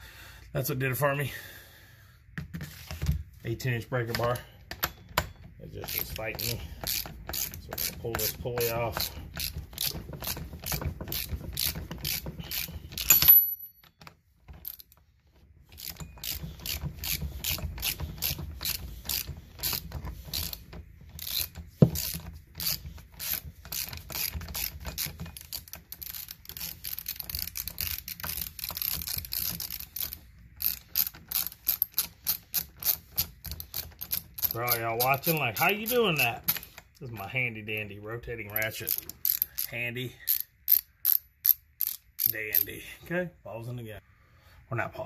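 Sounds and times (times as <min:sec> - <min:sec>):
ratchet wrench clicking: 0:05.8 - 0:13.7, 0:15.8 - 0:36.6, 0:38.6 - 0:39.7, 0:40.3 - 0:42.7.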